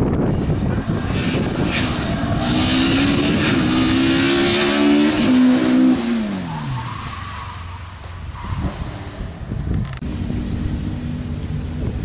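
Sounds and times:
rally car engine accelerating: 0.3 - 6.9.

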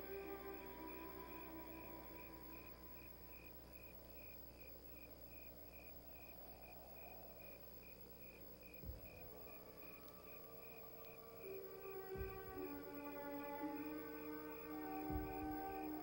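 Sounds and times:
cricket chirping: 0.0 - 16.0
low steady hum: 0.0 - 16.0
dull thump: 8.8 - 9.4.

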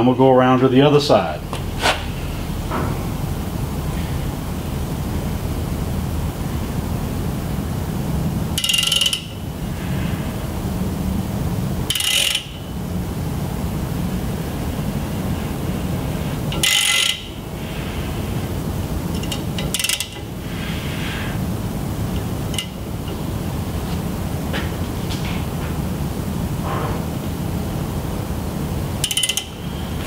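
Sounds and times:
drum fan running: 0.0 - 30.0
ratchet clicking: 8.6 - 9.4, 11.9 - 12.6, 16.5 - 17.3, 19.1 - 20.3, 22.1 - 23.2, 29.0 - 29.6.

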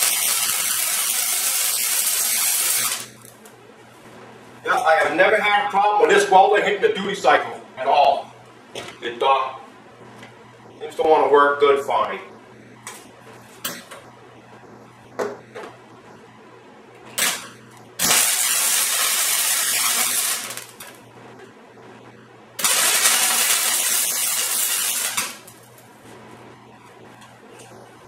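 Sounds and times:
welder sizzling crackle: 0.0 - 3.5, 17.2 - 21.0, 22.6 - 26.0.

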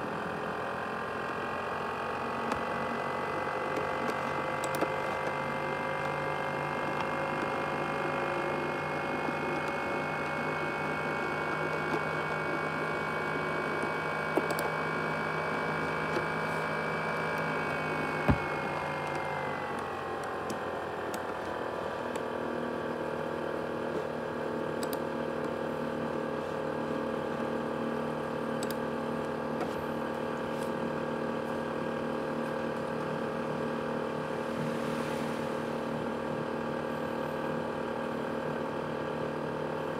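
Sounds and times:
laptop cooling fan whine: 0.0 - 39.9
click: 3.8 - 5.4, 14.4 - 14.7, 18.9 - 21.5, 24.8 - 25.5, 28.6 - 29.3.

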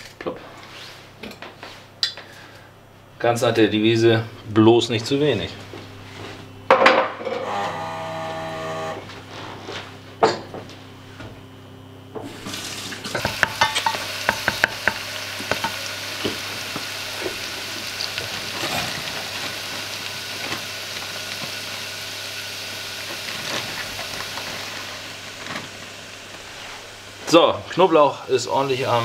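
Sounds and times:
garlic sizzling in a pot: 12.3 - 29.0.

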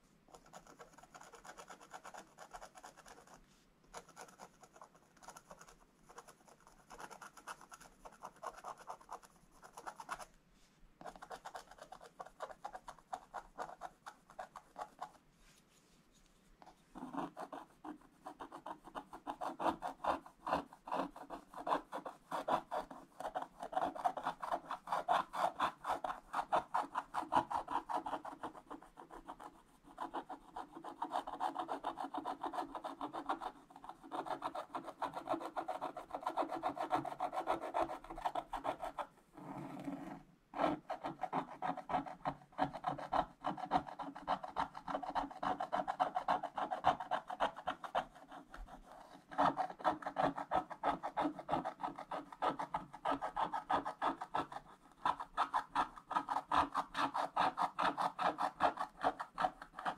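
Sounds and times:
stylus scraping scratch-art sheet: 36.7 - 59.9.

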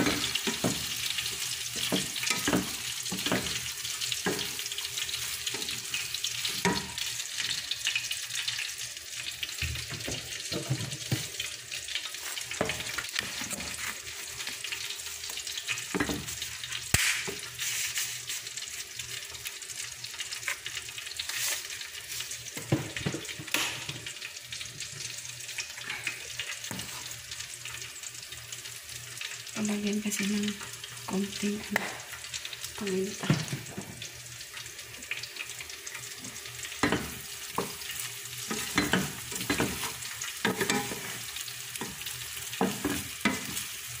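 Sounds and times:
rice sizzling in butter: 0.0 - 44.0
wooden spatula scraping a pot: 12.2 - 14.6, 38.5 - 43.6.

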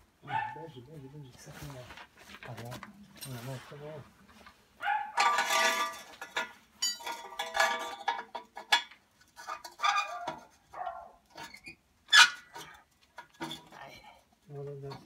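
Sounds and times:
metallic clinks of exhaust pipe: 5.2 - 8.0.

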